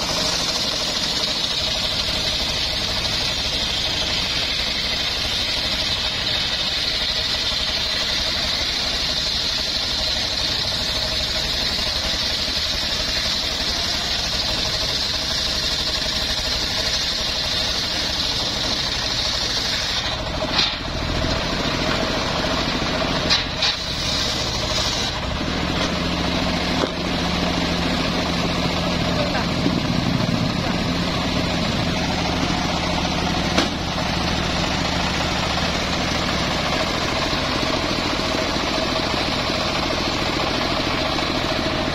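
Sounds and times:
circular saw blade cutting log: 0.0s - 41.9s
machine engine running: 0.0s - 41.9s.

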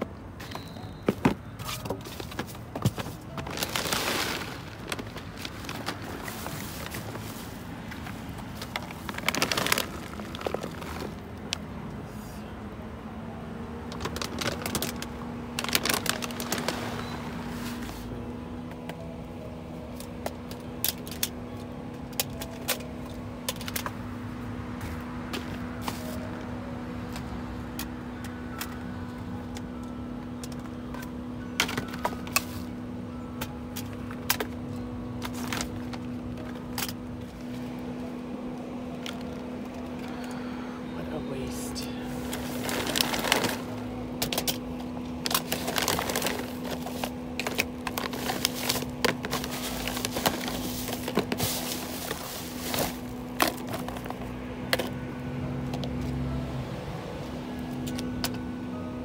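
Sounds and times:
bags rustling and crackling: 0.3s - 11.6s, 13.8s - 18.2s, 24.8s - 27.2s, 33.4s - 37.8s, 41.4s - 55.0s.

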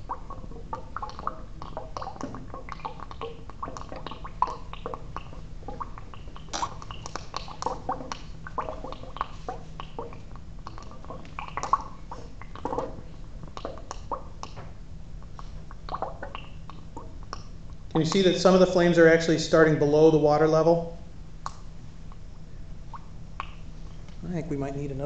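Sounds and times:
gas bubbling through water: 0.0s - 14.6s, 15.2s - 19.8s
small underwater pops: 0.0s - 17.9s, 22.9s - 24.2s.

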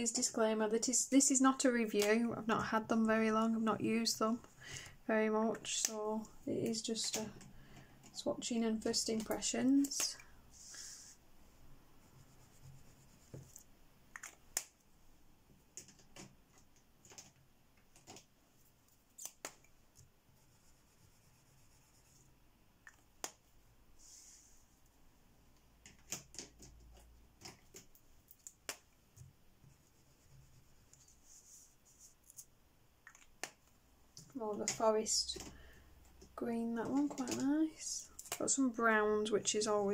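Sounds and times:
crayons clicking and tapping: 15.6s - 18.3s, 32.3s - 38.6s.

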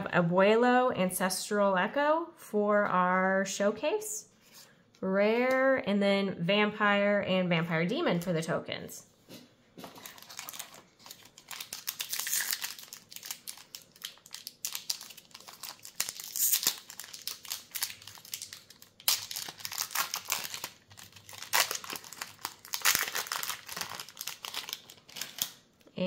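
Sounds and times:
foil wrapper crinkling: 9.9s - 25.6s.

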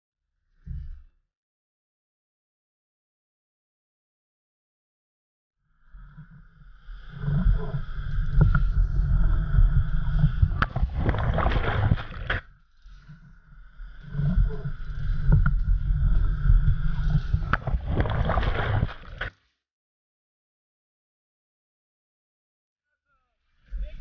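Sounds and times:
wind on microphone: 7.2s - 12.4s, 14.0s - 19.2s
surf crashing and splashing: 10.7s - 12.4s, 17.6s - 19.3s.

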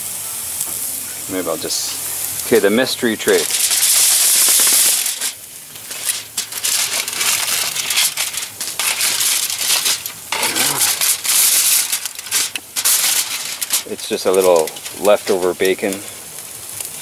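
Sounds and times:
food sizzling: 0.0s - 17.0s
aluminium foil crinkling: 1.6s - 17.0s.

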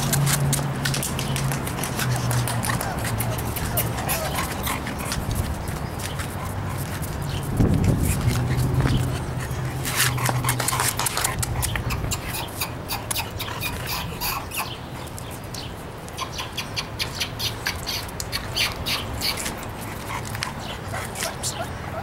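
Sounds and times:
puppies whimpering and yipping: 2.1s - 5.7s, 16.2s - 22.0s.

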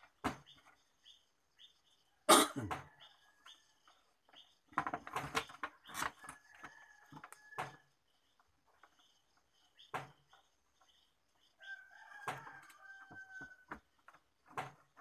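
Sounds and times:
small birds chirping: 0.0s - 15.0s
plastic parts knocking and clattering: 4.3s - 7.9s, 12.2s - 15.0s.

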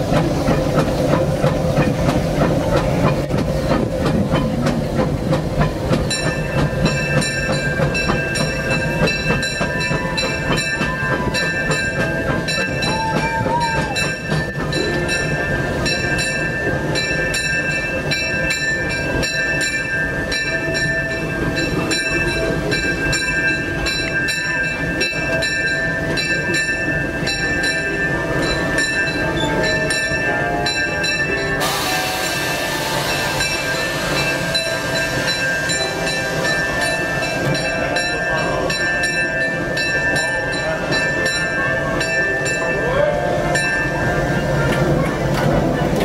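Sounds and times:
steam locomotive clatter and hiss: 0.0s - 46.0s
rush of steam hiss: 27.9s - 38.7s.

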